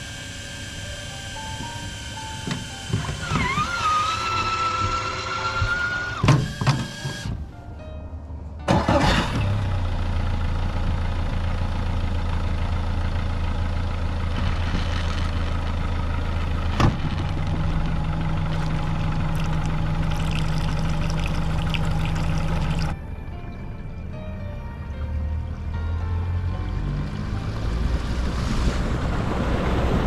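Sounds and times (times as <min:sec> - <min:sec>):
outboard motor starting and idling: 0:00.0 - 0:07.3, 0:08.7 - 0:23.0.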